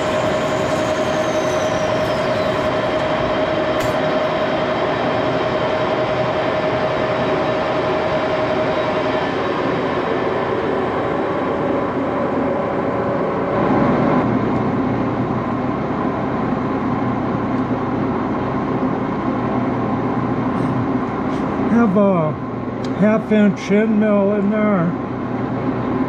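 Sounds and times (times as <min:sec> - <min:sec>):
metal lathe running: 0:00.0 - 0:13.2.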